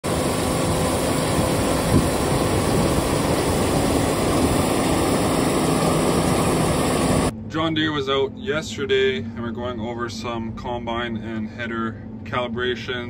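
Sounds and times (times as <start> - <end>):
combine harvester running: 0.0 - 7.8.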